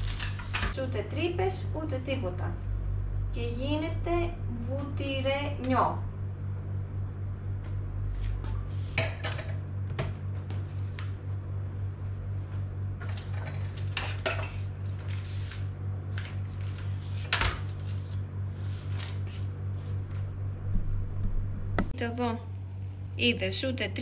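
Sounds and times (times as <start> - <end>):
steady low hum: 0.0 - 24.0
kitchen utensils clinking: 13.0 - 14.6.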